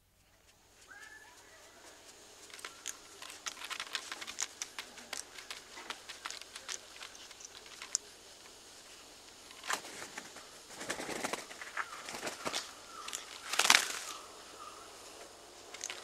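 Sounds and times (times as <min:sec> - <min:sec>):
wing flapping and feather rustling: 0:00.0 - 0:16.0
bird soft wavering call: 0:00.8 - 0:02.0.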